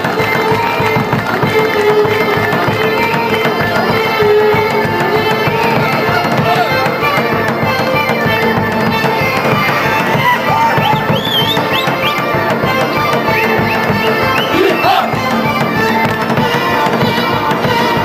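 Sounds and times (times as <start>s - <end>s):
accordion: 0.0s - 18.0s
frame drum beats: 0.0s - 18.0s
violins playing melody: 0.0s - 18.0s.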